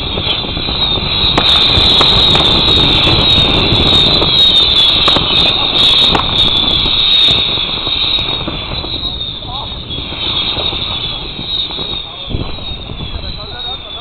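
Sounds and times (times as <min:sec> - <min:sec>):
firework cracks: 0:00.0 - 0:14.0
whistling fireworks: 0:00.0 - 0:14.0.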